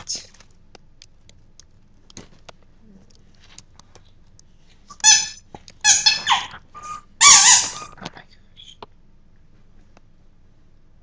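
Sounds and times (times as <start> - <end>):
squeaky rubber ball toy squeaking: 4.9 - 8.0.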